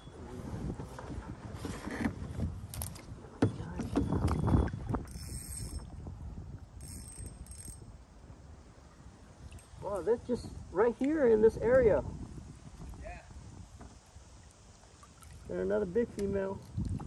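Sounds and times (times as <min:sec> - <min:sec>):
fishing reel whirring and clicking: 0:05.0 - 0:05.9, 0:06.8 - 0:08.0.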